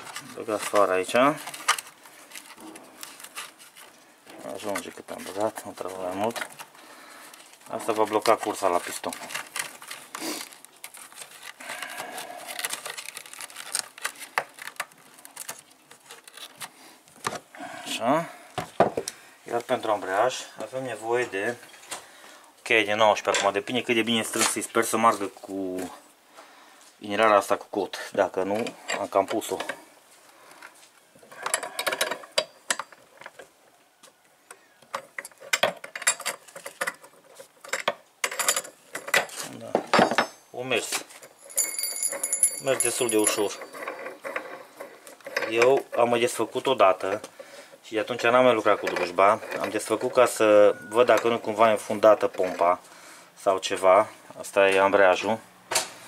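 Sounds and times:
small clicks and scrapes: 0:00.0 - 0:16.8, 0:30.4 - 0:39.6, 0:41.0 - 0:50.2
plastic and cord rustling: 0:00.0 - 0:17.5, 0:28.2 - 0:39.8, 0:40.7 - 0:53.0.

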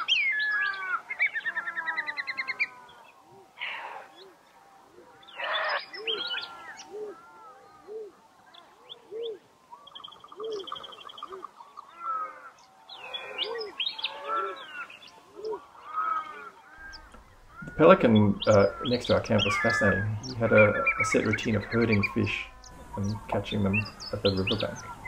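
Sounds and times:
low arched bird calls: 0:00.0 - 0:25.0
bird harsh screech: 0:15.9 - 0:25.0
fast high bird trill: 0:16.8 - 0:25.0.

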